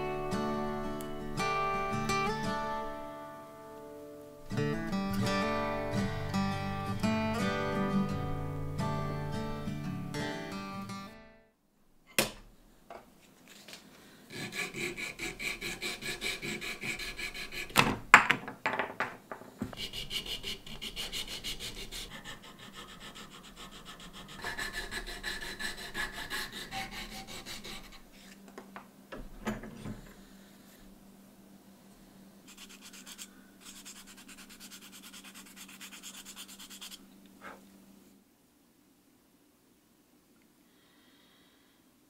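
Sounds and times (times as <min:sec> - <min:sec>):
hand file rasping on wood: 0:14.3 - 0:17.8, 0:19.6 - 0:28.4, 0:32.5 - 0:37.6.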